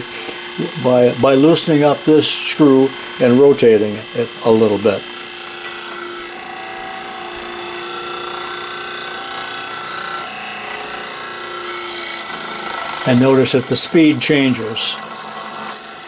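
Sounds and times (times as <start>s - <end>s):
electric motor whirring: 0.0s - 16.0s
brush hiss on commutator: 13.0s - 15.0s.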